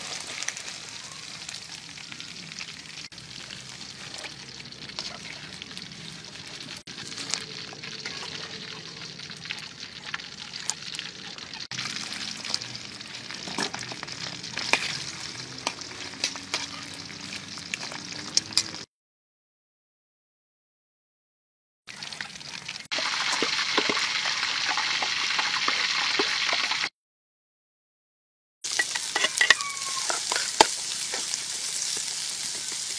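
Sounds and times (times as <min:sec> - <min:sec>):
deep-frying sizzle: 0:00.0 - 0:18.9, 0:21.9 - 0:26.9, 0:28.6 - 0:32.9
oil popping and crackling: 0:00.0 - 0:18.9, 0:21.9 - 0:26.9, 0:28.6 - 0:32.9.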